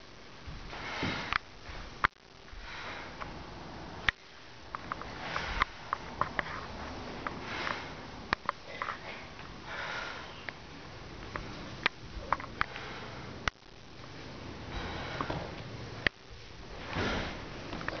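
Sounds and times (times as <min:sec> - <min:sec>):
person breathing through nose: 0:02.5 - 0:03.4, 0:05.0 - 0:06.7, 0:07.3 - 0:10.5, 0:12.6 - 0:13.4, 0:14.6 - 0:15.6.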